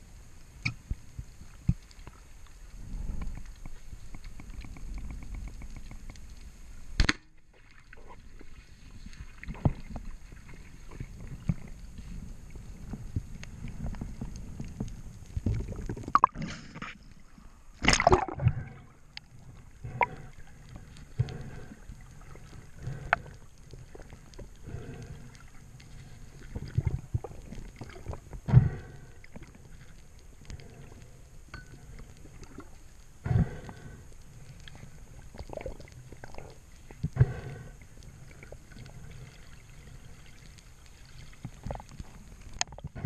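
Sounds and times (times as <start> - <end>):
water sloshing and splashing: 7.0 - 31.1, 34.5 - 43.0
low churning rumble: 17.1 - 40.6.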